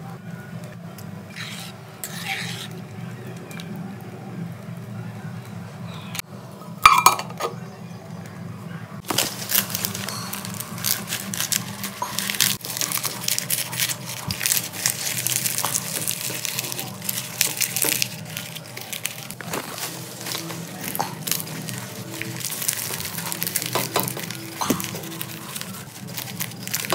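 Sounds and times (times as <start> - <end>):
banana leaves rustling and crinkling: 9.0 - 26.9.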